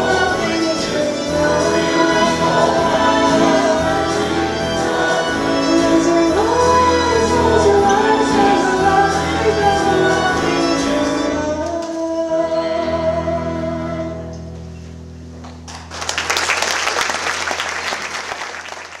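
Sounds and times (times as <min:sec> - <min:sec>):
choir and instruments chord: 0:00.0 - 0:11.4
audience applause: 0:15.7 - 0:19.0.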